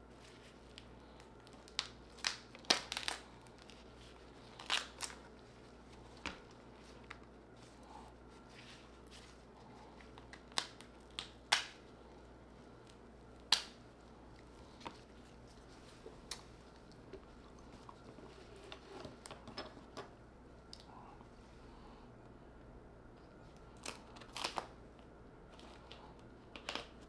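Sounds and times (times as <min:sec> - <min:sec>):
crab shell cracking: 0:01.4 - 0:03.7, 0:10.1 - 0:11.9.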